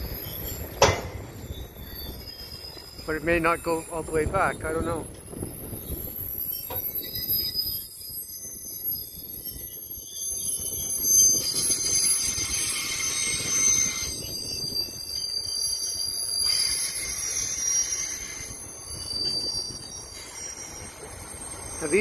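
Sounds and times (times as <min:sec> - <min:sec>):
high-pitched wheel squeal: 0:00.0 - 0:22.0
train wheels rumbling on rails: 0:00.0 - 0:22.0.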